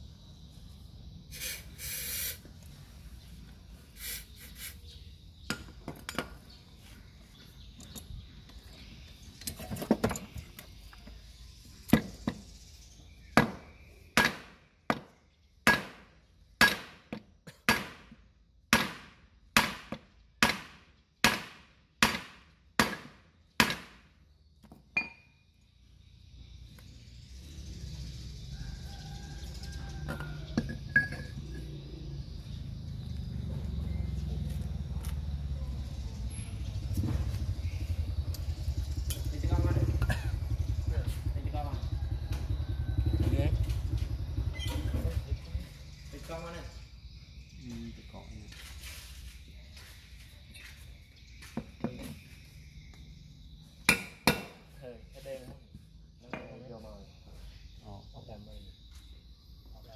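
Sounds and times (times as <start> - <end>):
hammer striking metal: 16.6 - 17.0, 53.9 - 54.6.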